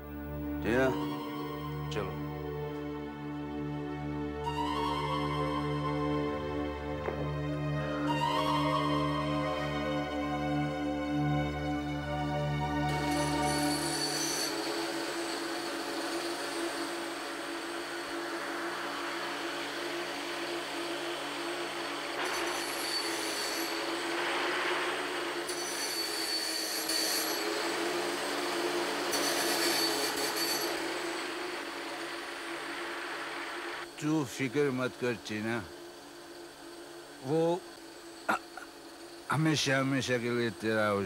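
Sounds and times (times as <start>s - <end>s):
low suspense drone: 0.0s - 14.1s
high shimmer: 12.6s - 27.5s
hiss: 14.0s - 27.8s, 29.2s - 35.4s.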